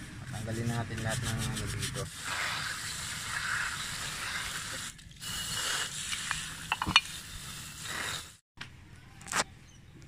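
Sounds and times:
water spraying from hose nozzle: 2.1 - 8.4
sharp clicks and knocks: 6.7 - 7.1.

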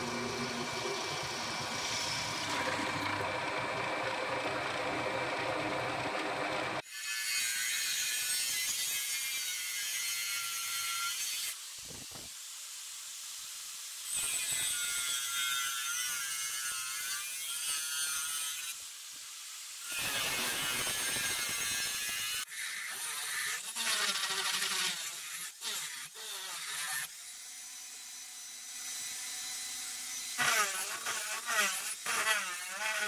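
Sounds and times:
drill press motor running: 0.0 - 6.8
angle grinder cutting metal: 0.0 - 11.6, 14.0 - 18.8, 19.8 - 33.0.

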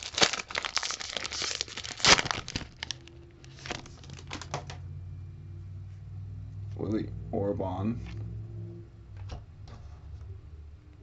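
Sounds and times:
foil wrapper tearing: 0.0 - 4.6
foil wrapper crinkling: 0.0 - 4.8.

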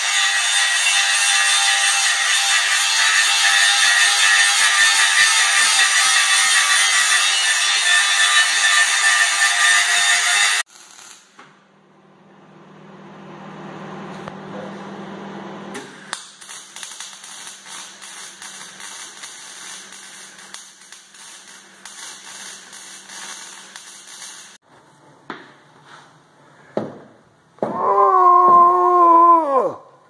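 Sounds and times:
arc welding crackling and sizzling: 0.0 - 11.4, 16.1 - 24.6.

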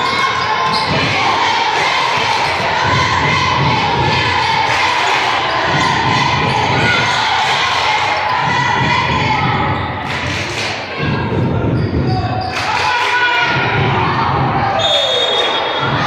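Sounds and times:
voices echoing in hall: 0.0 - 16.0.

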